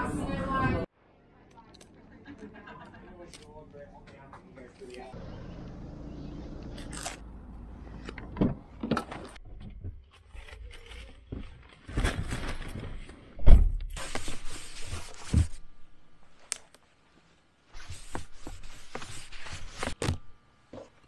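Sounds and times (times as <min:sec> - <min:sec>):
paper bag rustling: 0:10.4 - 0:13.2.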